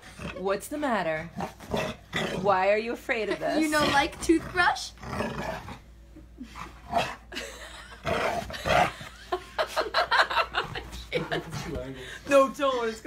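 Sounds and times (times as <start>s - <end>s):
dog growling: 0.0s - 2.7s, 3.6s - 9.1s.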